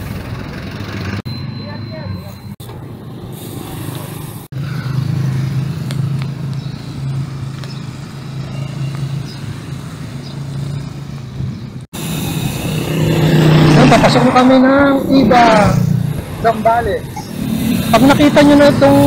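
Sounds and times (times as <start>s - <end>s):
road traffic drone: 0.0s - 19.0s
hiss: 12.0s - 12.9s.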